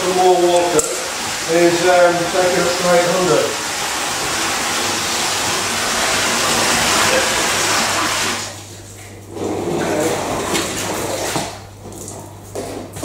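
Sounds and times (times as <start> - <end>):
water gushing from hose: 0.0 - 8.7
water splashing and gurgling: 0.0 - 8.8, 9.4 - 11.7.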